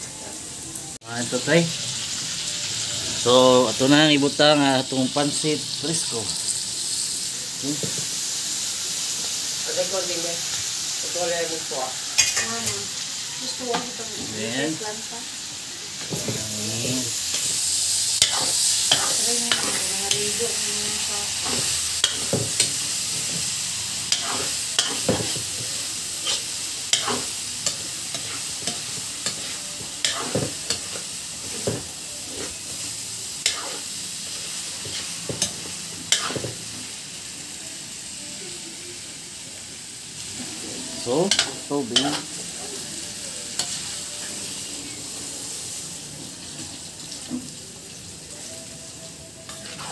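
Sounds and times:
noodles sizzling in a wok: 0.0s - 49.9s
metal spatula scraping a pan: 12.2s - 12.9s, 18.2s - 32.6s, 33.4s - 33.9s, 49.5s - 49.9s.

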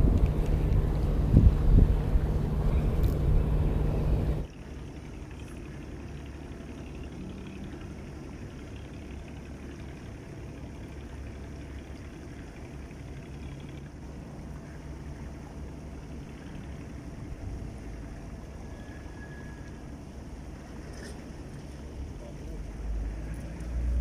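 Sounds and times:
wind rumbling on microphone: 0.0s - 4.5s
low background rumble: 0.0s - 24.0s.

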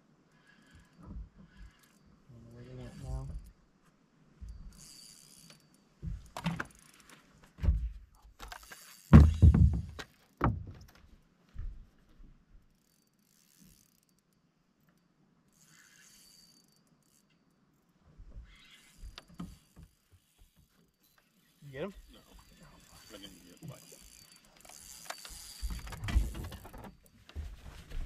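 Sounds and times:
fishing reel clicking: 0.3s - 3.6s, 4.5s - 7.1s, 8.4s - 9.1s, 12.7s - 17.9s, 18.5s - 27.0s
knocks and thumps on boat deck: 9.1s - 10.9s.

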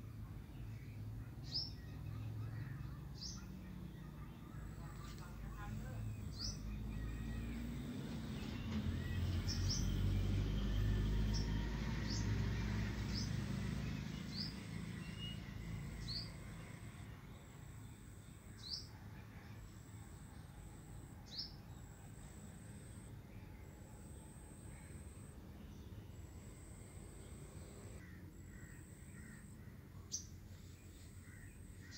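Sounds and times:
bird chirping: 0.6s - 18.9s.

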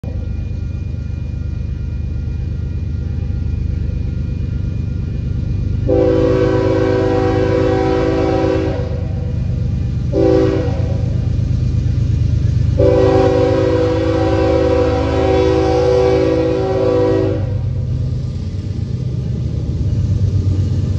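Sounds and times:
train rumble: 0.0s - 20.9s
locomotive horn blasts: 5.9s - 9.3s, 10.1s - 11.1s, 12.8s - 17.7s.

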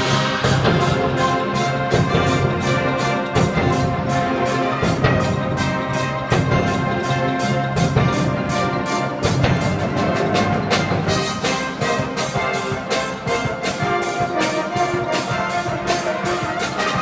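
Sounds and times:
brass band chords: 0.0s - 17.0s
percussion beat: 0.0s - 17.0s.

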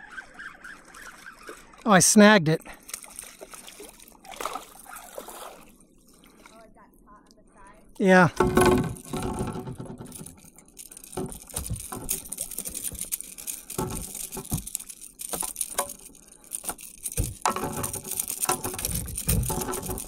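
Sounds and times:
fish flapping on line: 0.0s - 1.8s, 8.6s - 20.0s
hands handling hook and tackle: 8.3s - 20.0s.

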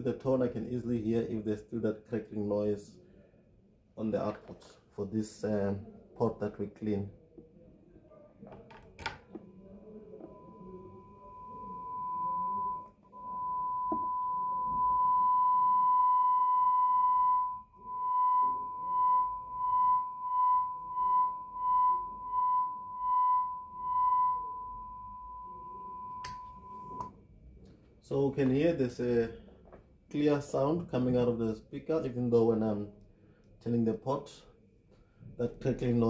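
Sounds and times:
steady test tone through amplifier: 8.5s - 27.2s
amplifier click: 26.2s - 27.1s.

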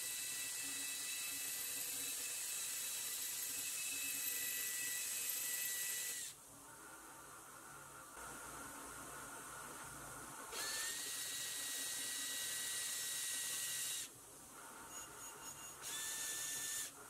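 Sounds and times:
cordless drill whine: 0.0s - 6.4s, 10.5s - 14.1s, 14.8s - 17.0s.

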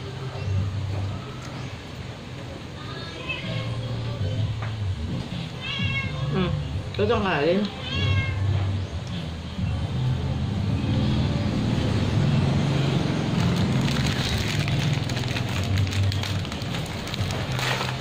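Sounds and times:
plastic wrapper crinkling and tearing: 13.3s - 18.0s.

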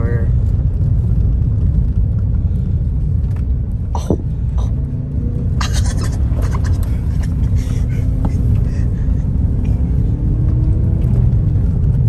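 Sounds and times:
engine and tyres rumbling: 0.0s - 12.0s.

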